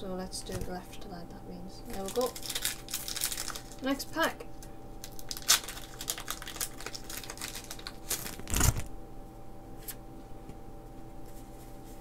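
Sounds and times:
foil wrapper crinkling and tearing: 1.9 - 4.0, 5.0 - 8.9
cards rustling: 5.0 - 8.9.

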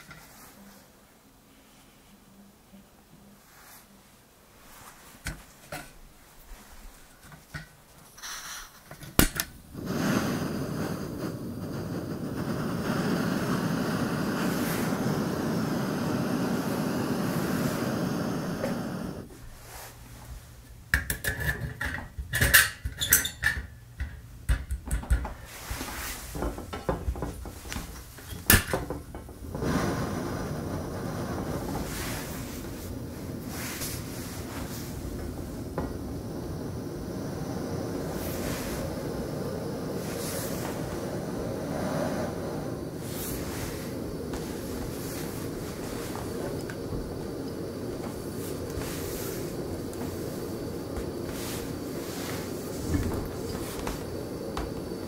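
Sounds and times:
gas burner hissing: 3.3 - 55.0
clicks and knocks handling stove: 8.9 - 9.6, 20.9 - 25.5, 26.4 - 29.4.

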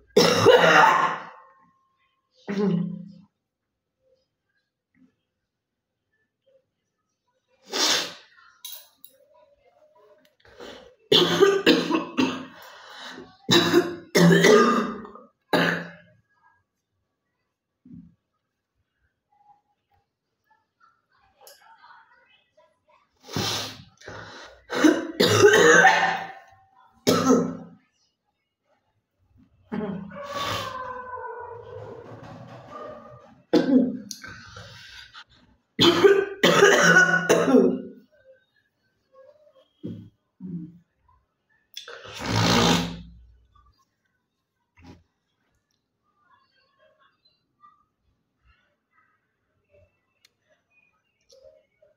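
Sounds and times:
woman coughing: 0.2 - 1.4, 11.1 - 12.6, 13.5 - 16.0, 24.7 - 26.4, 27.0 - 27.7, 33.6 - 34.0, 35.8 - 38.0.

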